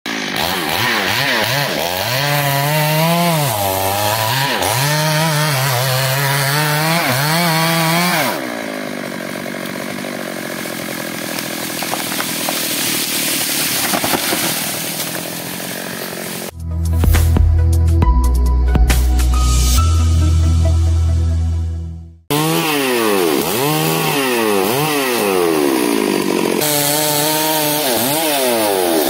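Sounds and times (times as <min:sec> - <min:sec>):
chainsaw cutting wood: 0:00.1 - 0:16.6, 0:22.3 - 0:29.0
sharp cracks: 0:10.8 - 0:15.6.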